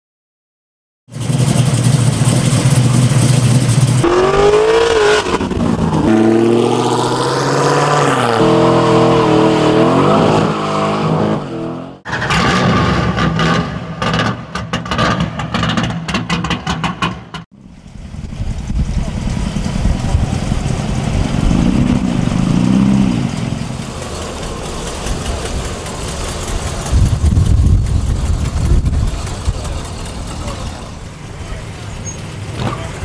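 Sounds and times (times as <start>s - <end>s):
engines revving hard: 1.1s - 16.4s, 18.4s - 33.0s.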